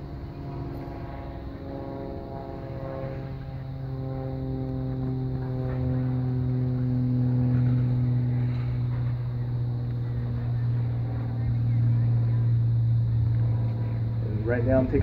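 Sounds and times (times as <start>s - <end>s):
small engine droning: 0.0s - 15.0s.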